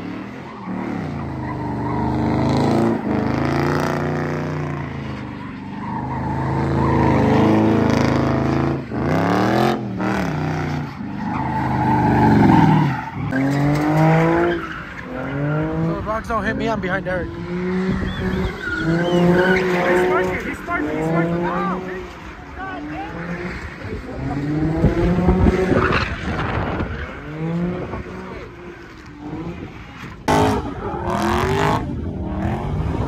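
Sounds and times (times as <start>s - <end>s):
car engine revving: 0.0s - 33.0s
tyres squealing on pavement: 0.2s - 2.9s, 4.6s - 8.5s, 10.6s - 15.6s, 17.9s - 23.8s.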